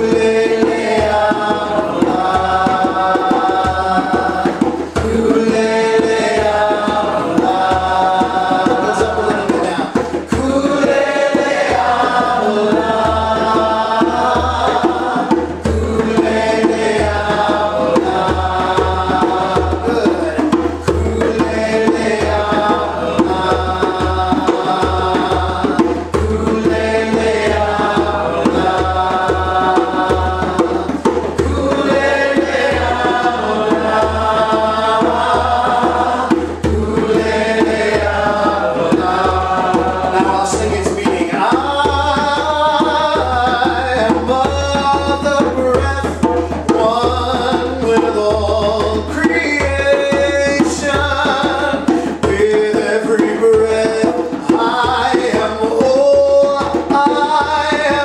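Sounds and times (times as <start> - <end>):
voices chanting: 0.0 - 45.1
hand drum beating rhythm: 0.0 - 58.0.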